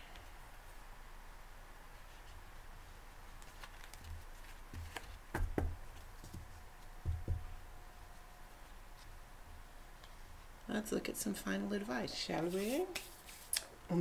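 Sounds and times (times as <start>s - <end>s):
cards clicking and thumping: 3.4s - 6.5s.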